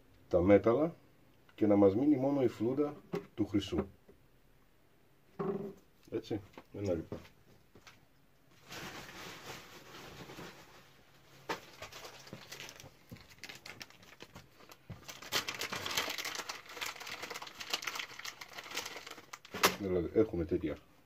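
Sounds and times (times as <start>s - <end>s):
plastic bag crinkling: 8.6s - 19.9s.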